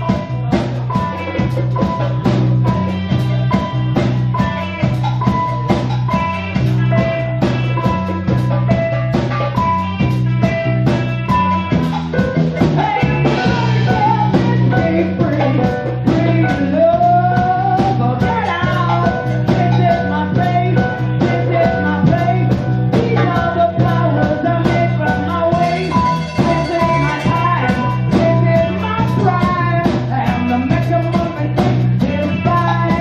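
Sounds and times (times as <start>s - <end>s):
woman singing into a microphone: 0.0s - 11.9s, 12.6s - 33.0s
drum kit beat: 0.0s - 33.0s
electric guitar: 0.0s - 33.0s.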